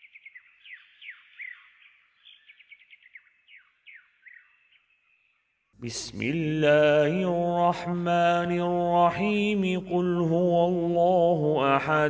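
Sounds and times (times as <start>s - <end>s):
faint bird song: 0.0s - 6.2s.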